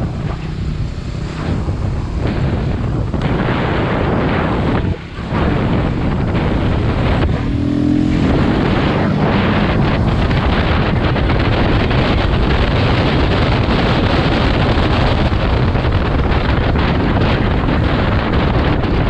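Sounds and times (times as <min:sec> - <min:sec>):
motorcycle engine running: 0:00.0 - 0:19.0
wind buffeting microphone: 0:00.0 - 0:19.0.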